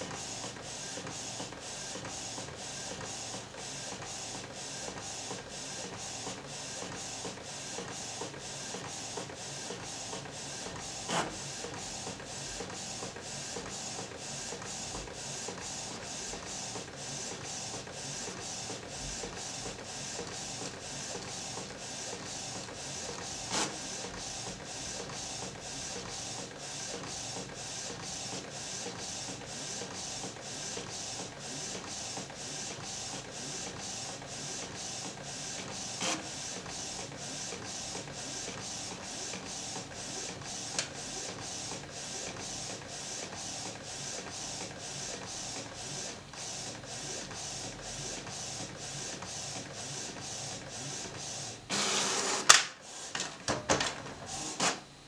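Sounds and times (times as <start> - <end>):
sharp printer clicks: 51.7 - 53.6
printer carriage sweeping: 51.7 - 54.9.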